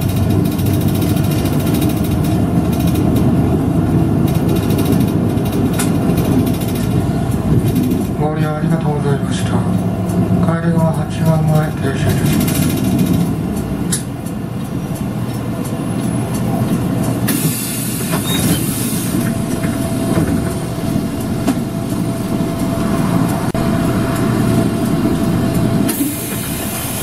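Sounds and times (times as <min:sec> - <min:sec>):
bus engine and road rumble: 0:00.0 - 0:27.0
steady whine: 0:16.6 - 0:27.0.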